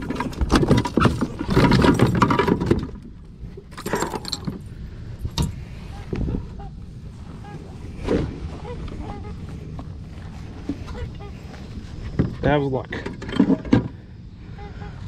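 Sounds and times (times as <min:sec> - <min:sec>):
hooks clinking: 0:03.7 - 0:04.6.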